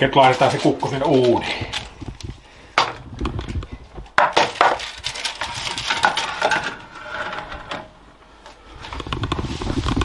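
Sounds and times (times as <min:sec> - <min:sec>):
metal baking sheet scraping: 0:00.0 - 0:01.6, 0:04.6 - 0:08.0, 0:08.9 - 0:10.0.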